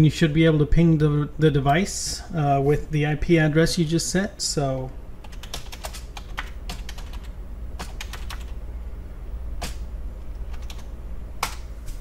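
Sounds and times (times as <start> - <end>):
keyboard typing: 5.2 - 8.6, 10.4 - 11.6.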